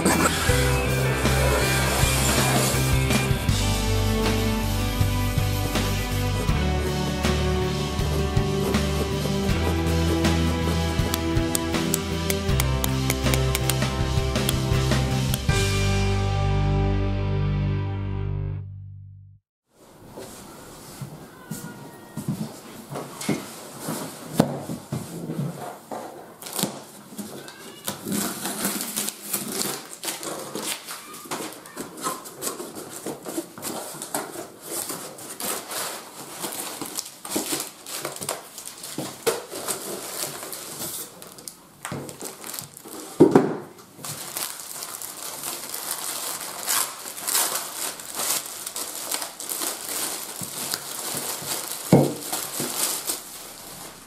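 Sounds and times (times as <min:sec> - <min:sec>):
bubble wrap and plastic crinkling: 0:19.9 - 0:54.0.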